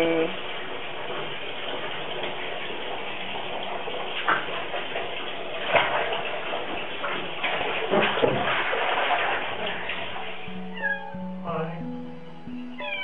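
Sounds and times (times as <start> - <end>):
steady background hiss: 10.1 - 13.0.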